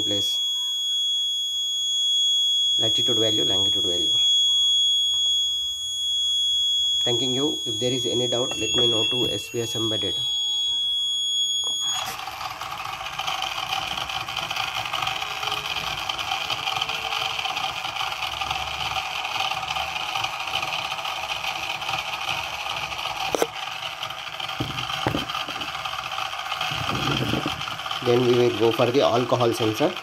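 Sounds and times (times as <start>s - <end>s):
small motors whirring: 7.1s - 30.0s.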